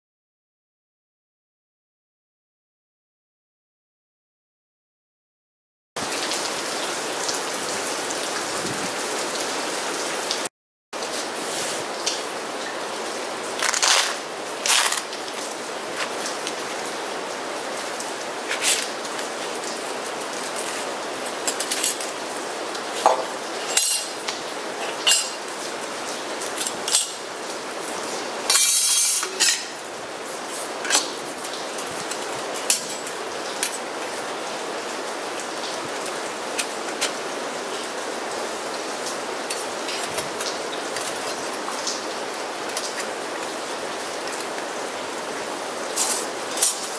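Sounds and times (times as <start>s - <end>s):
rain hiss: 6.0s - 46.9s
metal plates clinking and scraping: 23.0s - 24.2s, 24.8s - 25.4s, 28.5s - 29.8s.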